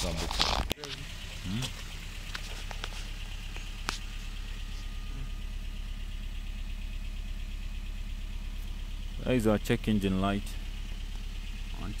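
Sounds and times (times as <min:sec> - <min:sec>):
car engine idling with misfire: 0:00.0 - 0:12.0.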